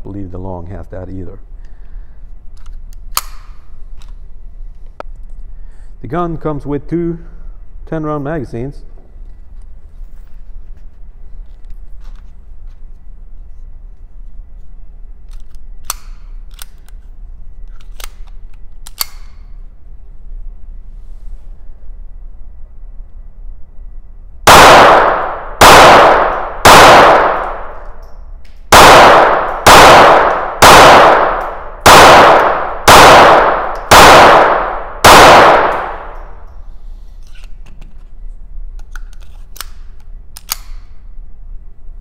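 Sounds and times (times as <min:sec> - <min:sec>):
pistol handling clicks: 0:02.6 - 0:04.1, 0:15.3 - 0:17.0, 0:17.6 - 0:19.5, 0:33.2 - 0:34.8, 0:35.4 - 0:36.6, 0:38.8 - 0:41.0
pistol shots indoors: 0:15.2 - 0:17.0, 0:17.6 - 0:19.7, 0:24.4 - 0:36.7, 0:38.8 - 0:41.4.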